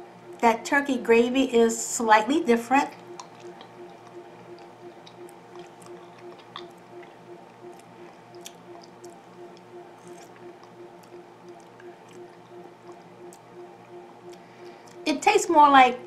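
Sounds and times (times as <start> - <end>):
faint steady hum: 0.0 - 16.0
person chewing food: 3.2 - 13.5.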